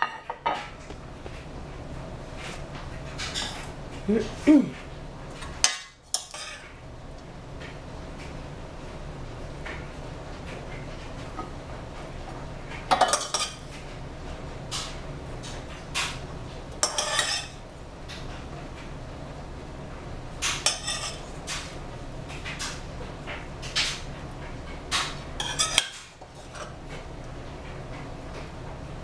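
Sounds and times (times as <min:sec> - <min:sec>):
metal spoon scraping a plate: 0:05.6 - 0:06.7, 0:16.8 - 0:17.6, 0:20.6 - 0:21.3, 0:25.4 - 0:26.8.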